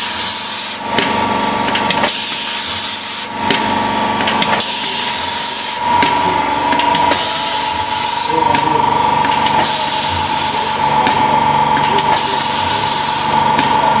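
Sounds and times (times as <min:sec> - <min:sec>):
laminator whine: 0:00.0 - 0:14.0
laminator hiss: 0:09.5 - 0:11.0, 0:12.0 - 0:13.4.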